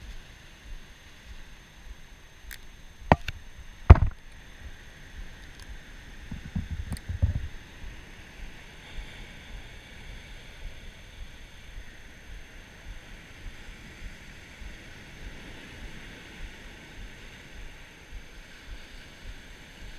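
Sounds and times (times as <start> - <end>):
steady background hiss: 0.0 - 19.9
sharp knocks: 3.1 - 3.3, 3.9 - 4.2, 6.3 - 7.5
dull thumps: 3.9 - 4.2, 6.3 - 7.6.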